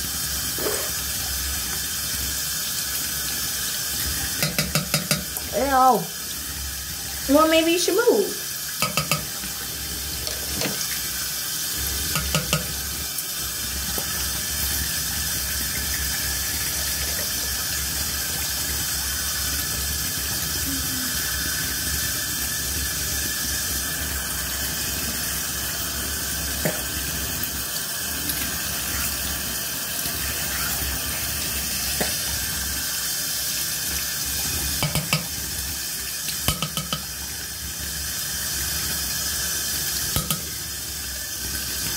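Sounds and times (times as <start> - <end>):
tap running into sink: 4.0 - 5.5, 8.7 - 9.6, 10.2 - 11.1, 12.0 - 12.9, 13.9 - 14.3, 26.6 - 27.2, 31.9 - 32.4, 34.6 - 35.6, 36.3 - 37.4, 39.9 - 40.6.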